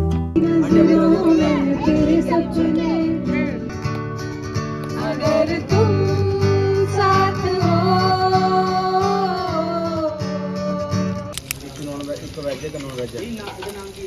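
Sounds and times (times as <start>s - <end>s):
acoustic guitar: 0.0s - 14.0s
woman singing into a microphone: 0.4s - 3.7s, 4.9s - 11.3s.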